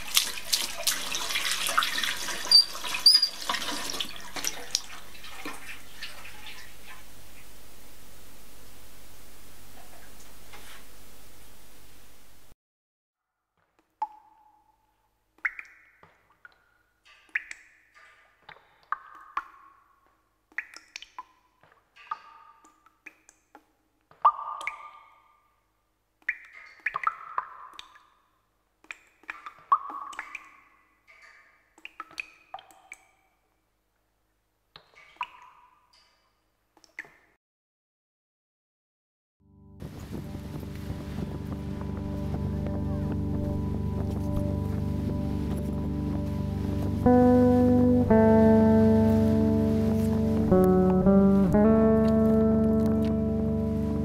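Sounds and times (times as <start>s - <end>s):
tap water running into sink: 0.0s - 6.7s
water dripping: 0.0s - 8.2s, 13.6s - 34.1s, 34.7s - 37.4s, 40.6s - 54.0s
tap squeaking: 2.5s - 3.4s.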